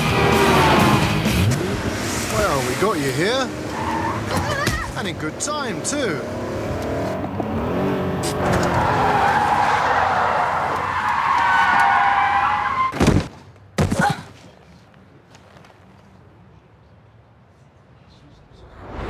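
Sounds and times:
tyres squealing in a skid: 2.4 - 4.9, 8.2 - 13.0.

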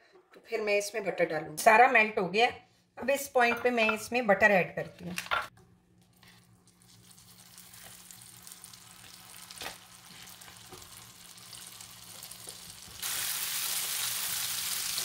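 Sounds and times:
butter sizzling in caramel: 6.6 - 15.0.

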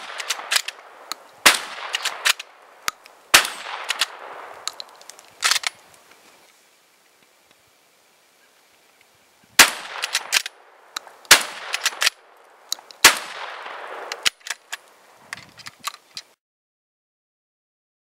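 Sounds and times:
shotgun blasts echoing: 0.0 - 2.6, 3.3 - 4.6, 9.6 - 10.6, 11.3 - 12.2, 13.0 - 14.3
metallic clicks and clanks: 0.1 - 0.8.

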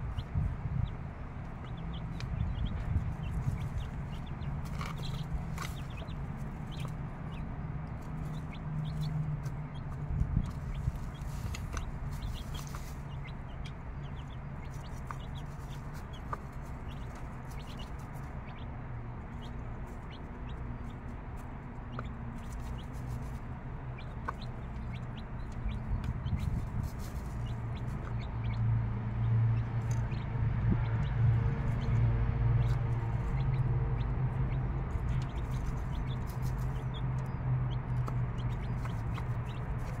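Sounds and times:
chicks peeping: 0.0 - 40.0
hen clucking: 8.2 - 18.6.

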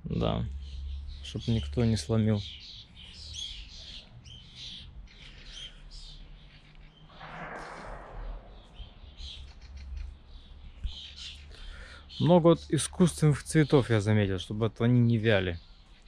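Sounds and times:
songbirds chirping: 0.0 - 16.0
soft rush of noise: 7.1 - 10.3.

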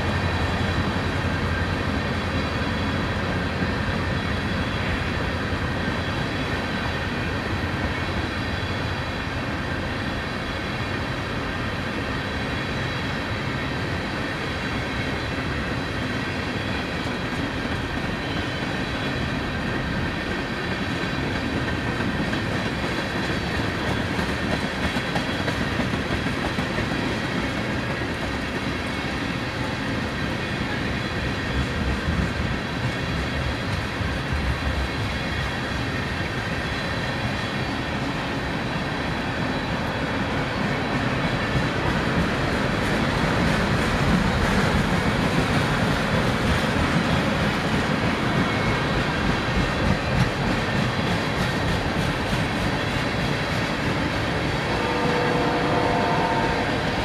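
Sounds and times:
train wheels rumbling on rail: 0.0 - 57.0
train clatter: 11.7 - 57.0.

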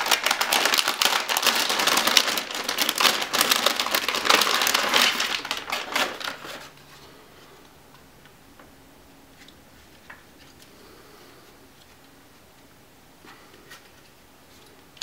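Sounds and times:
metallic bag crinkling: 0.0 - 6.7.

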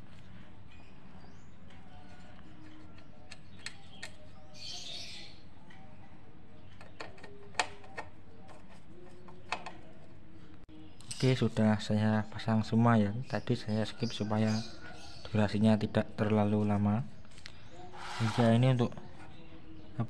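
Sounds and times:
low background noise: 0.0 - 20.0
short scrape: 18.0 - 18.6.

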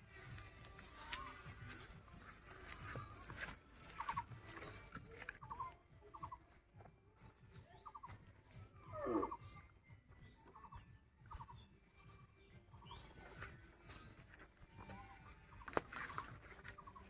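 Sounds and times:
faint bird chirps: 7.5 - 17.0.

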